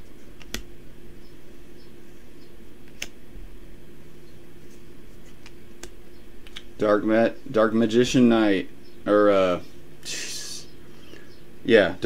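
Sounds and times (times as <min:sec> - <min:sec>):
steady low hum: 0:00.0 - 0:12.0
cards clicking: 0:00.4 - 0:00.7.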